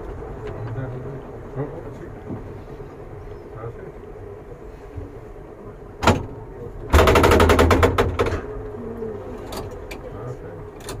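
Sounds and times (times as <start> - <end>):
railcar humming: 0.0 - 7.0
sharp knock: 6.9 - 8.4.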